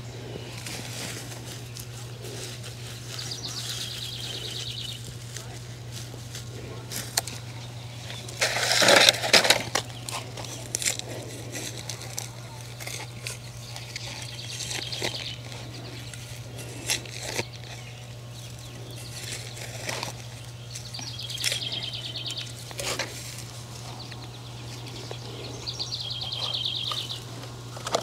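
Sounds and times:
steady low hum: 0.0s - 28.0s
hand tool digging soil: 0.4s - 23.6s
songbird trilling: 2.8s - 5.1s, 11.9s - 27.5s.

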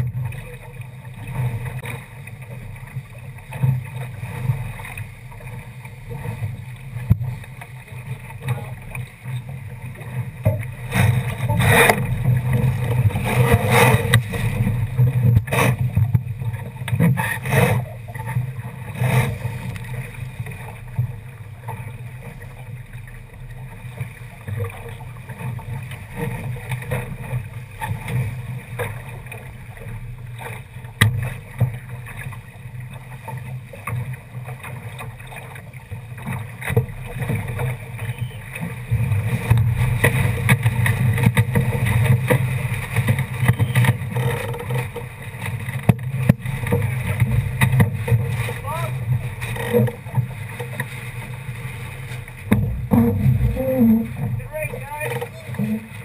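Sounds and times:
water splashing along hull: 0.0s - 56.0s
low rumble: 46.0s - 56.0s.

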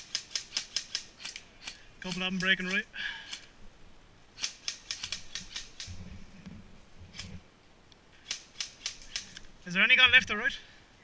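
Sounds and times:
airsoft rifles firing: 0.0s - 3.4s, 4.4s - 5.9s, 8.2s - 9.4s.

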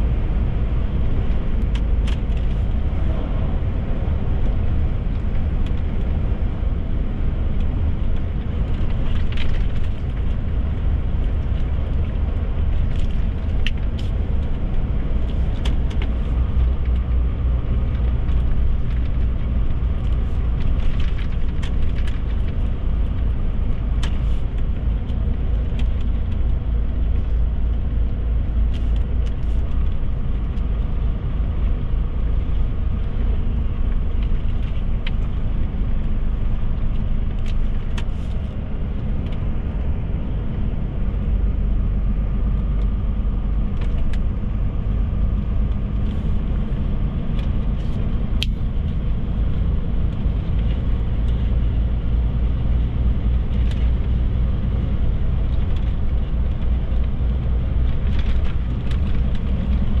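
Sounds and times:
truck diesel engine rumbling: 0.0s - 60.0s
tyre and road noise: 0.0s - 60.0s.

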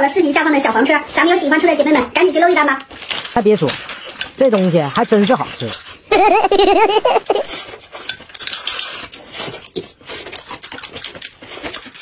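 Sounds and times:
chopsticks clicking against bowls: 2.3s - 6.0s, 7.2s - 12.0s
chewing: 7.5s - 12.0s.

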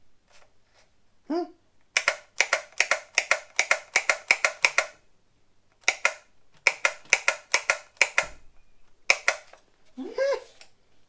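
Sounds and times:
plastic trigger switch clicking: 2.0s - 5.0s, 5.8s - 8.3s, 9.1s - 9.6s.

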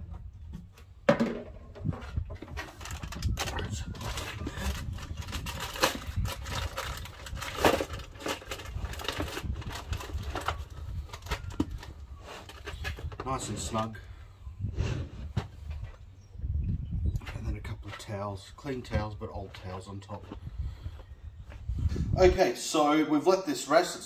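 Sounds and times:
aluminium foil crinkling: 2.7s - 13.0s.

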